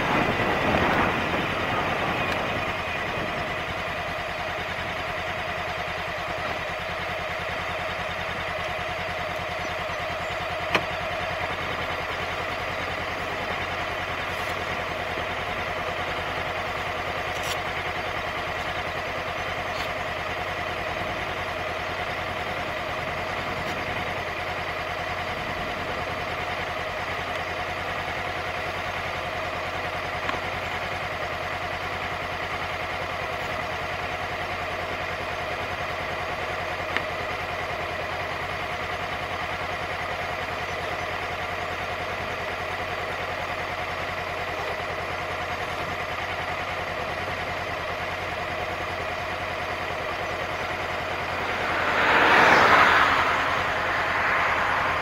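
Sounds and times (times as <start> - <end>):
wind and road noise: 0.0 - 34.9, 48.2 - 55.0
motorcycle engine idling: 0.0 - 55.0.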